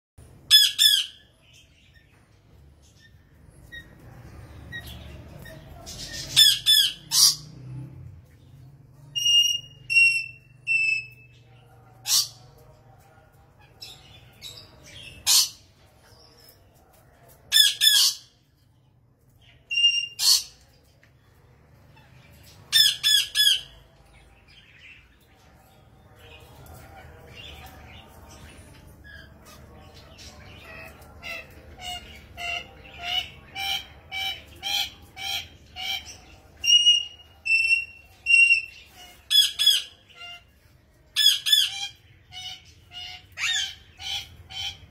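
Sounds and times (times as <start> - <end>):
parrots squawking: 0.5 - 1.3, 4.7 - 7.6, 12.0 - 12.5, 14.9 - 15.7, 19.7 - 20.6, 21.9 - 23.8, 41.2 - 44.9.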